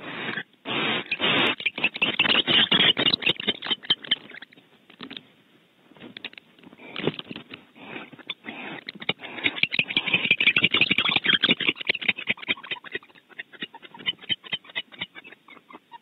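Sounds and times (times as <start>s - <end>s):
owl talons scratching on wood: 0.0s - 4.5s.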